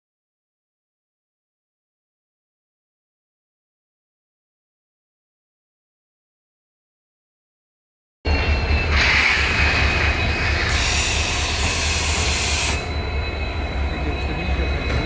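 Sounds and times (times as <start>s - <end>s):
diesel locomotive engine rumbling: 8.3s - 15.0s.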